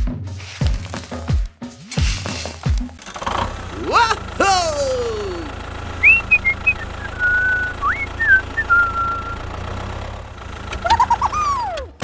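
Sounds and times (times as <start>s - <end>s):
tractor engine rumble: 2.3s - 12.0s
whistled notes and pitch glides: 6.0s - 9.7s.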